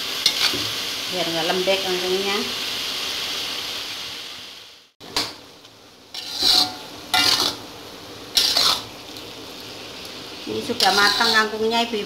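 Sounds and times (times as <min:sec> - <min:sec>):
food sizzling in a wok: 0:00.0 - 0:12.0
spatula scraping metal wok: 0:00.2 - 0:00.6, 0:06.1 - 0:07.6, 0:08.3 - 0:09.0, 0:10.5 - 0:11.8.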